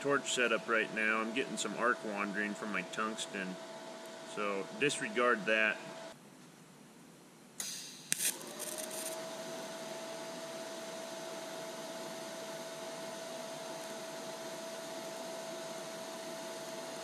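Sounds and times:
high whine: 0.0s - 6.2s, 7.6s - 10.9s
welding arc crackle: 7.6s - 9.6s
welding arc hissing: 7.6s - 9.8s.

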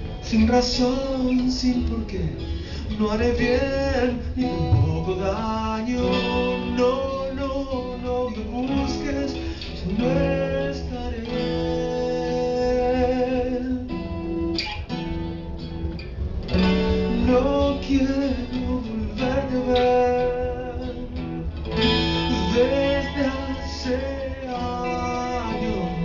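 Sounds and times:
electric guitar: 0.0s - 26.0s
strummed acoustic guitar: 0.0s - 26.0s
drums: 2.6s - 11.9s, 12.9s - 26.0s
live band playing: 4.5s - 5.3s.

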